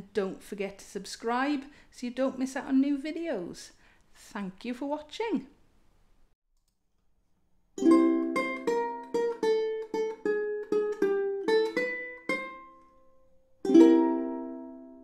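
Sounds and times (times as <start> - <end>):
ukulele strumming: 7.8 - 15.0.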